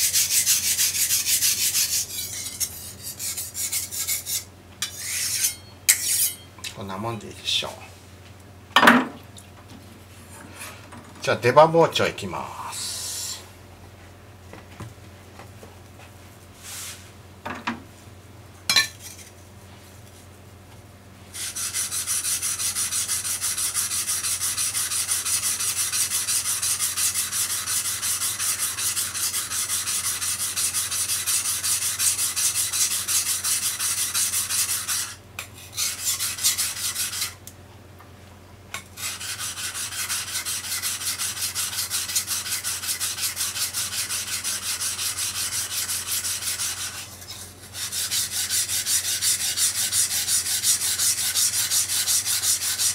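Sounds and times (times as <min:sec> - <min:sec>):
knife grinding on whetstone: 0:00.0 - 0:06.5, 0:21.4 - 0:37.4, 0:38.8 - 0:52.9.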